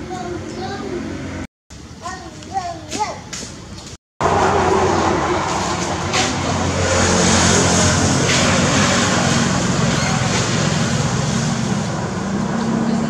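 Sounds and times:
engine drone: 4.2 - 13.0.

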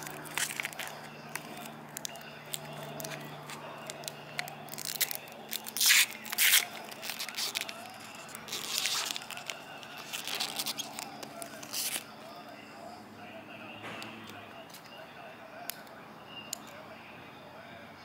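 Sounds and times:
plastic wrapping crinkling and tearing: 0.0 - 12.2.

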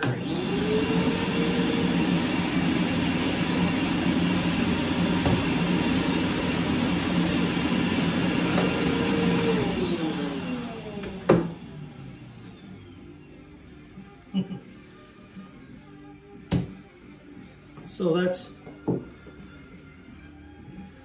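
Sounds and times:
vacuum motor running and winding down: 0.0 - 13.0.

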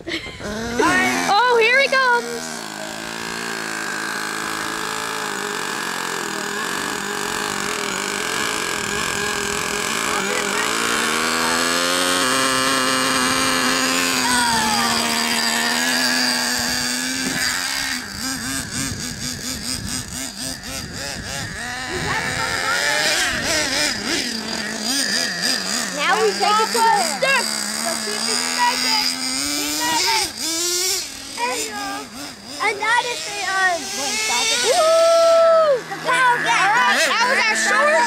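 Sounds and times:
small nitro engine revving: 0.0 - 38.0.

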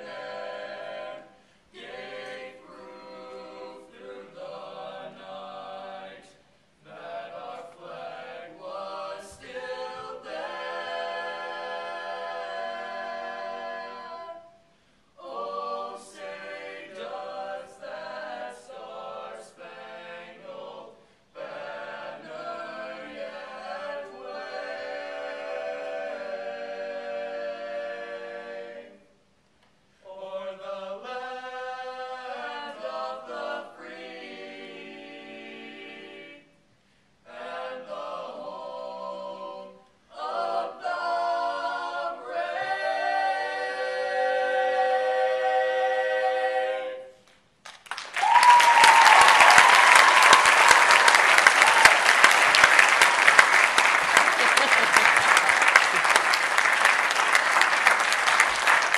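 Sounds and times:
young men singing a cappella: 30.0 - 36.4.

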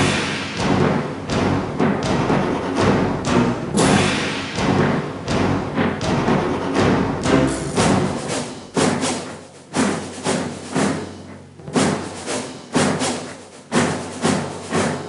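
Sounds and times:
background music: 0.0 - 15.0
heavy drum hits: 0.0 - 15.0.

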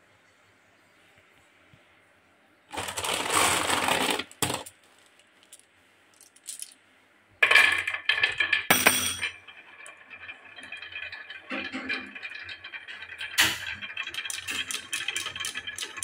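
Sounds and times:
marbles clicking on wooden rail: 7.4 - 16.0
marbles clinking together: 7.4 - 16.0.

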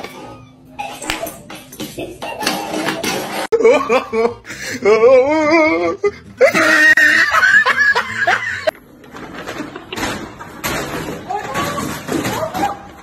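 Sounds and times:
person laughing: 2.0 - 8.7.

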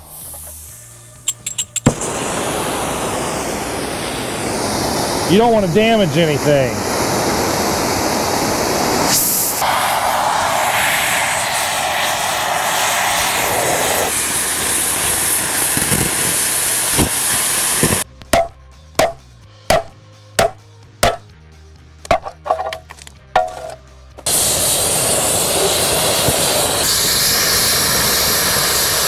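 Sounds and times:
steady rushing noise: 1.9 - 18.1
hammer blows on metal: 17.8 - 21.3.

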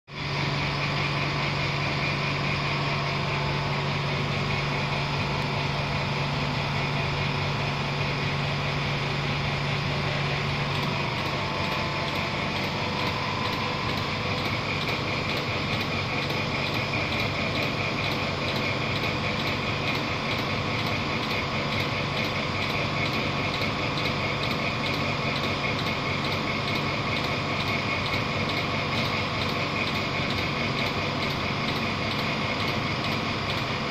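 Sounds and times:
low hum: 0.2 - 15.7.

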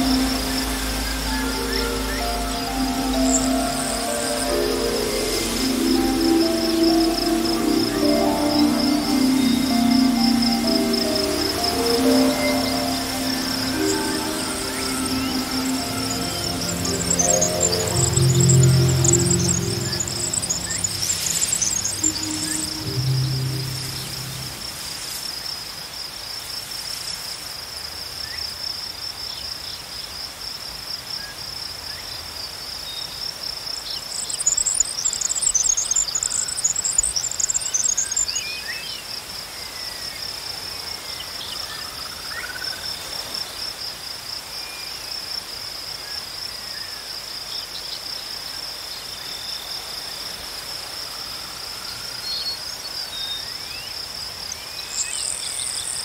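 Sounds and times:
insects trilling: 0.0 - 25.5.

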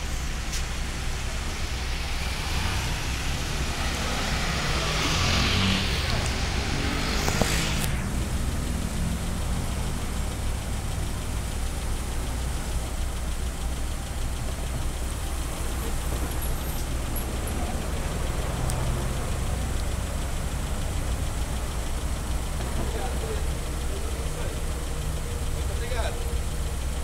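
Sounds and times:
car engines idling: 0.0 - 27.0.

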